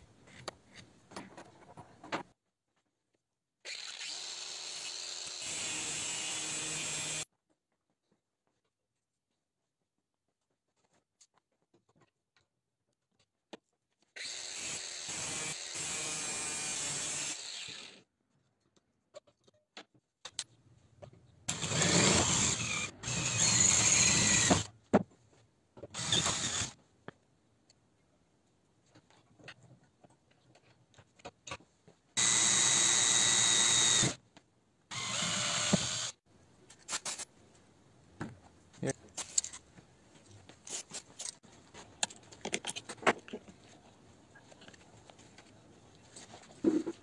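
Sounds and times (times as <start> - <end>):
electric drill boring metal: 3.7 - 7.2, 14.2 - 18.0, 21.5 - 24.7, 26.0 - 26.8, 32.2 - 34.2, 34.9 - 36.2.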